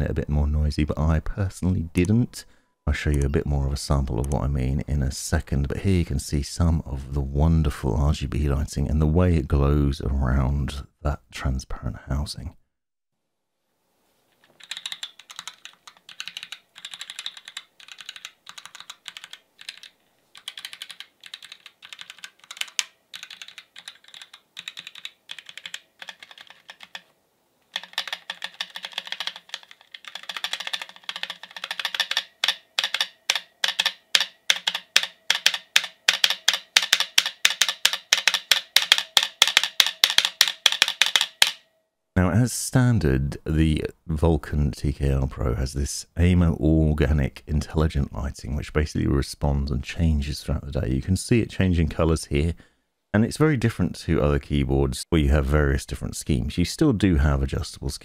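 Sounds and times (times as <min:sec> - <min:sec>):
keyboard typing: 0:14.4 - 0:27.1, 0:27.7 - 0:41.6.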